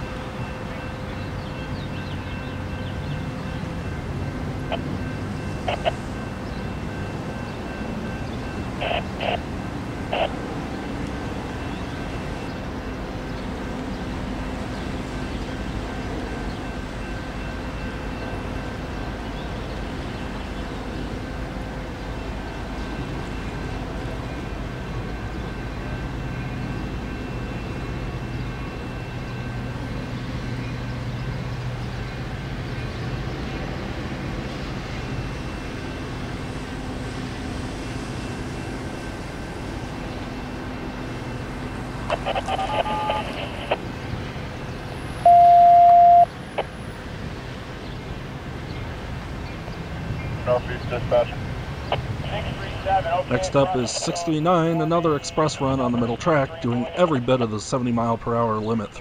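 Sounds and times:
train diesel engine drone: 0.0s - 59.0s
short beeps: 42.1s - 43.5s, 45.2s - 46.3s.

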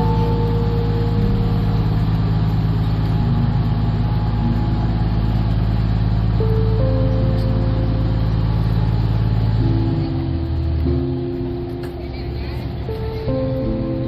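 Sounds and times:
boat engine droning: 0.0s - 14.0s.

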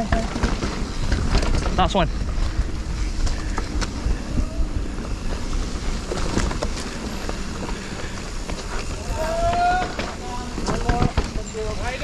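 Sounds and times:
bike rattling clicks and knocks: 0.0s - 12.0s
wind and tyre rumble: 0.0s - 12.0s.

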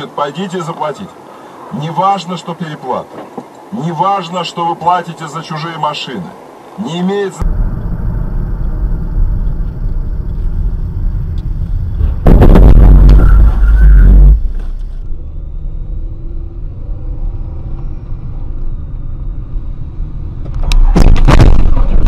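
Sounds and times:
road and engine rumble: 0.0s - 22.0s
loud distorted noise: 7.4s - 14.8s.

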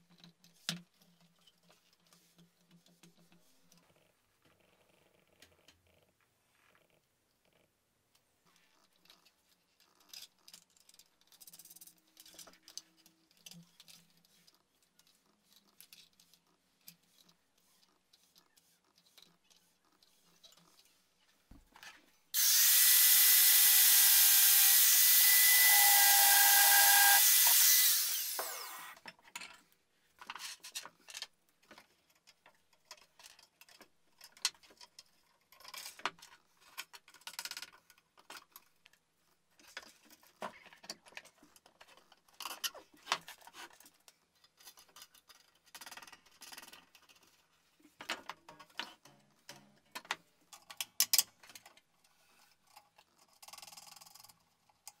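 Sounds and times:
angle grinder cutting metal: 22.4s - 29.0s.

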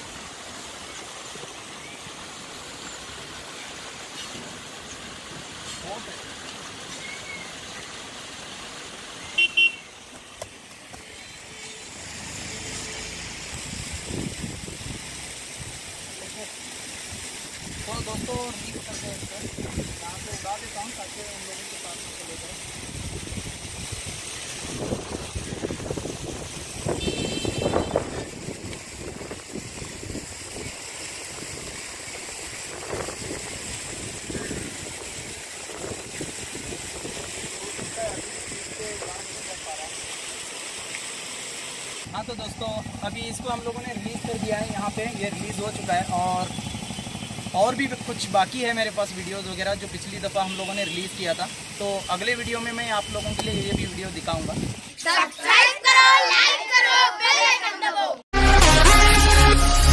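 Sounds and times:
outdoor traffic noise: 5.6s - 17.5s, 24.3s - 31.2s, 40.9s - 48.6s, 51.3s - 51.9s
vehicle horn tooting: 9.4s - 9.9s, 26.9s - 28.3s, 50.4s - 52.3s, 52.9s - 53.9s
wind buffeting microphone: 13.6s - 15.0s, 22.7s - 31.8s, 32.4s - 38.8s, 53.5s - 54.9s.

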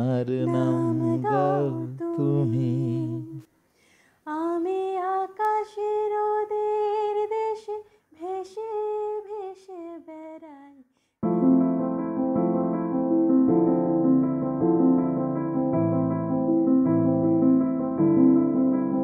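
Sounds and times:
piano: 0.0s - 3.5s, 11.2s - 19.0s
woman singing wordless melody: 0.2s - 3.5s, 4.2s - 11.6s.

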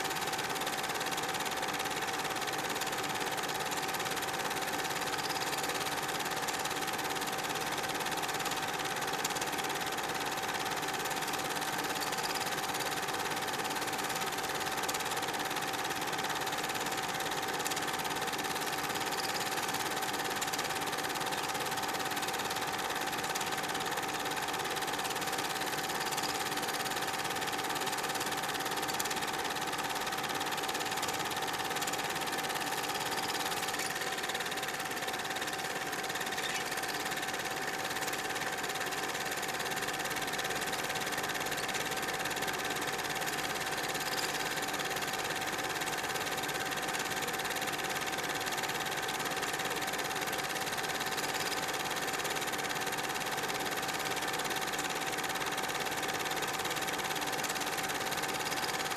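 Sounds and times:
film projector whirring clatter: 0.0s - 58.9s.

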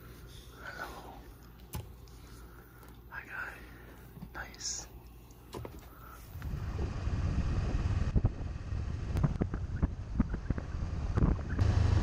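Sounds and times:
motorcycle engine and wind rumble: 6.3s - 12.0s.

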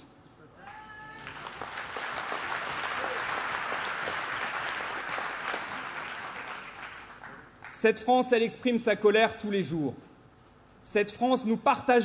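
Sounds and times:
audience applauding: 0.6s - 7.8s.

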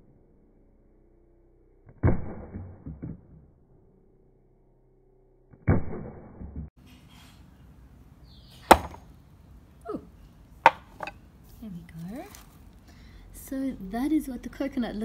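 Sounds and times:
hammer striking coconut: 8.7s - 9.1s, 10.6s - 11.2s.

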